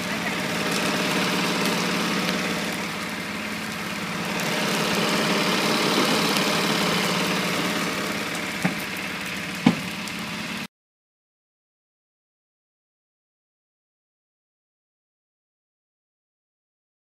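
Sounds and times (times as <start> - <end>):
dry grass burning and crackling: 0.0 - 10.7
engine idling: 0.0 - 10.7.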